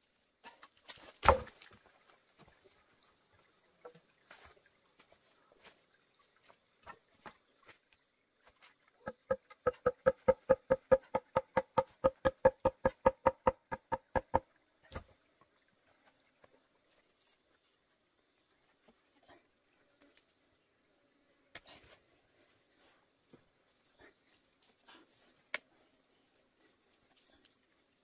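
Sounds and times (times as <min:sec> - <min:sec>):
hollow bamboo knocks: 0:09.0 - 0:14.5.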